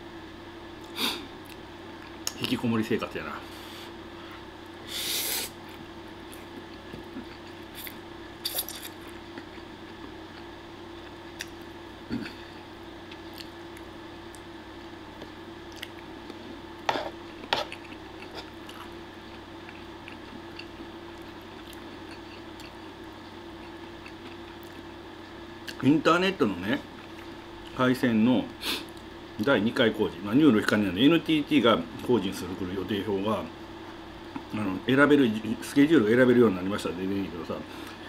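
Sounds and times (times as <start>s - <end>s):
steady low hum: 0.0s - 38.0s
chewing: 13.1s - 14.4s, 15.7s - 16.0s, 17.3s - 22.9s, 23.6s - 24.8s.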